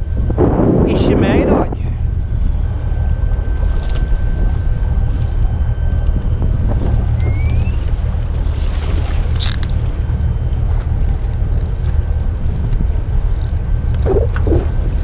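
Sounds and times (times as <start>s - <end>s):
boat engine rumbling: 0.0s - 15.0s
faint steady whine: 0.0s - 15.0s
wind on microphone: 0.0s - 15.0s
short rising whine: 2.8s - 8.3s, 14.0s - 15.0s.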